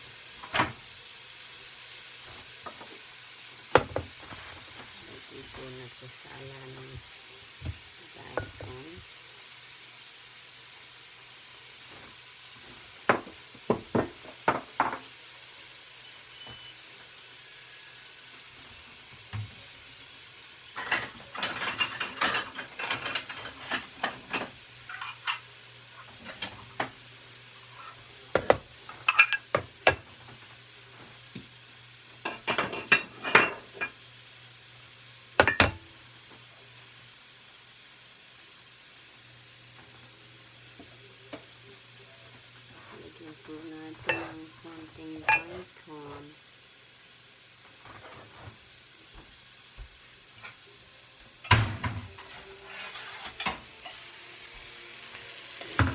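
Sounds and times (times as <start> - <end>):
ceramic plates clattering: 20.8 - 25.5, 28.4 - 30.0.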